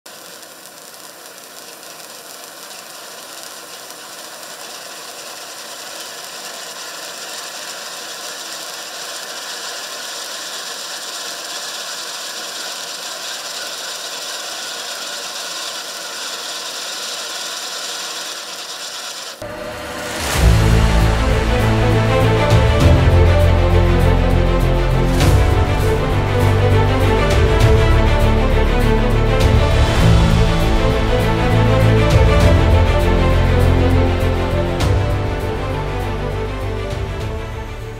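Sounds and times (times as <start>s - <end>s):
firework crackling hiss: 0.0s - 37.9s
whoosh: 19.4s - 23.5s
music: 19.4s - 37.9s.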